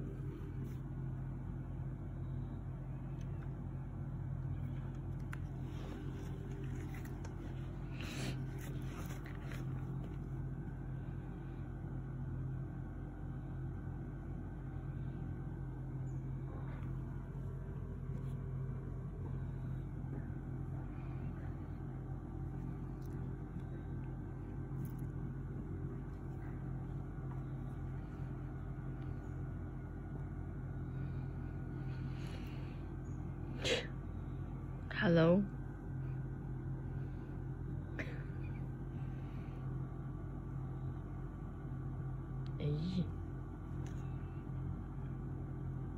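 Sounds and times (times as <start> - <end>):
low mechanical hum: 0.0 - 45.9.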